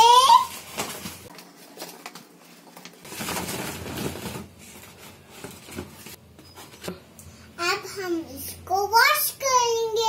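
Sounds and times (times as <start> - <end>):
paper bag crinkling: 0.4 - 6.2.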